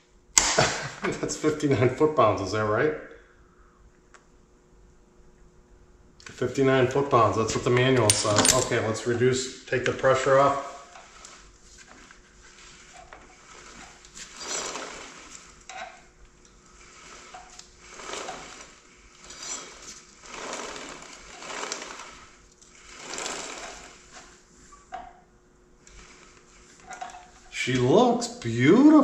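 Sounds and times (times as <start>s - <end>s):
drive chain whirring: 7.4s - 24.4s.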